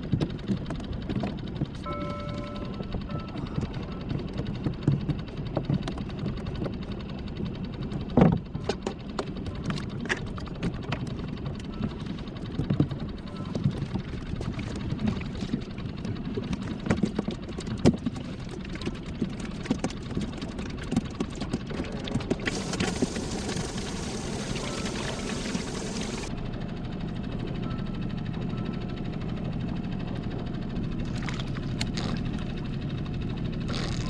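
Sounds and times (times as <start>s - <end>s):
steady low hum: 0.0s - 34.0s
water noise: 12.9s - 26.3s.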